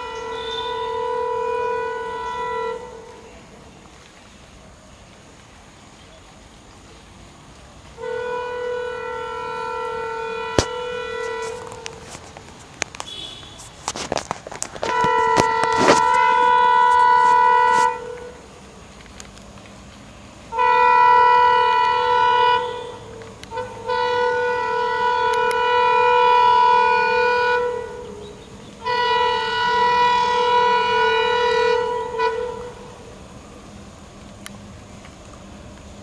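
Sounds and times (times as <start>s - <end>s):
locomotive air horn blasts: 0.0s - 3.5s, 8.0s - 12.3s, 13.0s - 14.1s, 14.7s - 18.5s, 20.5s - 33.2s.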